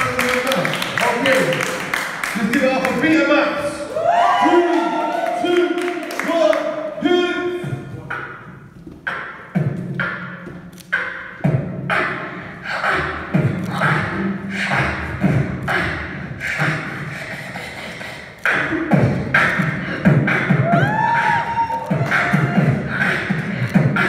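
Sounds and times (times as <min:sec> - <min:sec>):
person beatboxing: 0:07.1 - 0:24.0.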